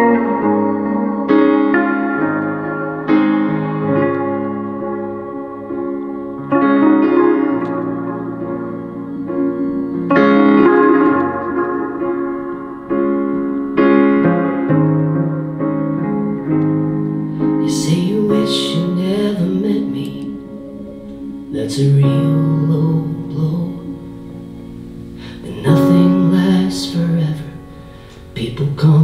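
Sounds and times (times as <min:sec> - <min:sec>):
guitar strums: 0:00.0 - 0:22.2
electric piano chords: 0:00.0 - 0:29.0
person singing gliding voice: 0:17.6 - 0:24.2, 0:25.3 - 0:27.7.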